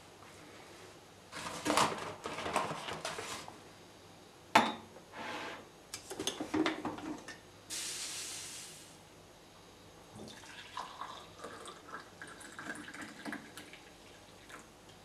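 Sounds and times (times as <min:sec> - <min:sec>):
short hiss: 0:07.7 - 0:09.0.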